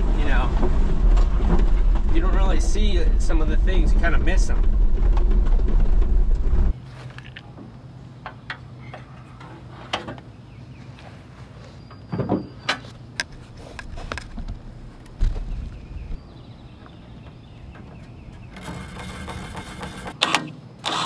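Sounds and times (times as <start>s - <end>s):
low thuds: 0.0s - 6.8s, 13.9s - 18.9s
truck engine rumble: 0.0s - 12.1s, 12.9s - 20.2s.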